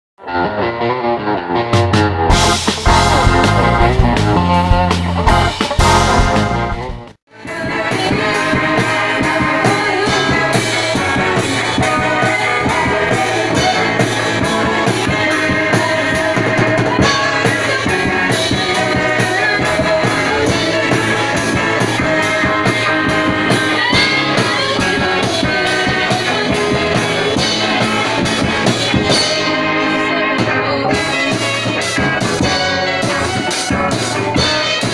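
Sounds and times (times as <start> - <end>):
bass guitar: 0.2 - 34.9
electric guitar: 0.2 - 34.9
drum kit beat: 1.8 - 34.9
girls singing into microphones: 7.4 - 32.1.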